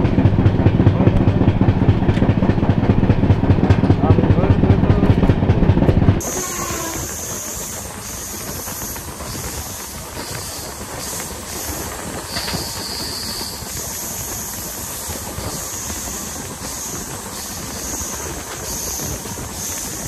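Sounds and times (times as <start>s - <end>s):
train wheels rumbling on rail: 0.0s - 20.0s
high hiss: 6.2s - 20.0s.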